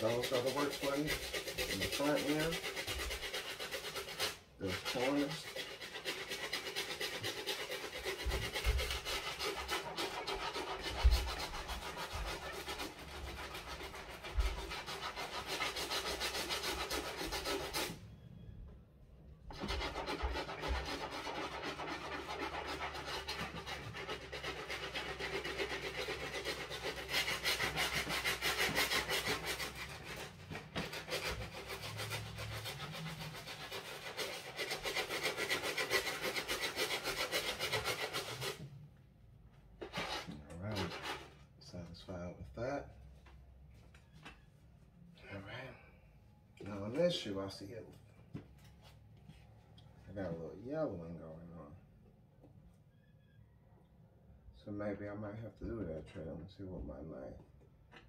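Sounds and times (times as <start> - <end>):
brush scrubbing sneaker: 0.0 - 17.9, 19.5 - 38.6.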